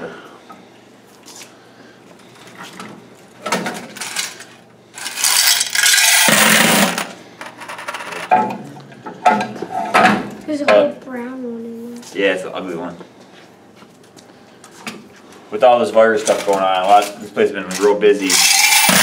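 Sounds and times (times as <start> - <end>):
coins pouring out: 5.0 - 8.2, 18.2 - 19.0
metal coin boxes clunking: 5.0 - 8.6, 17.7 - 19.0.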